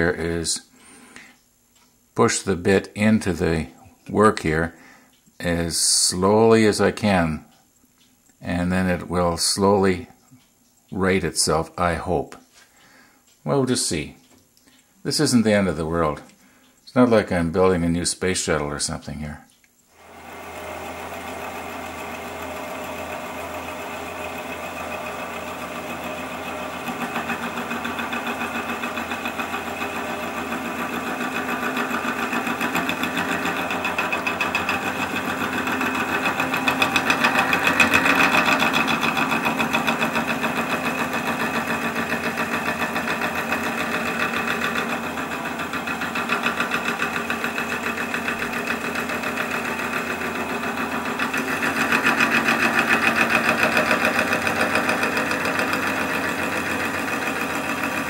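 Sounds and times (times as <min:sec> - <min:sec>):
wood lathe drilling with chatter: 0:00.0 - 0:00.4, 0:20.0 - 0:58.0.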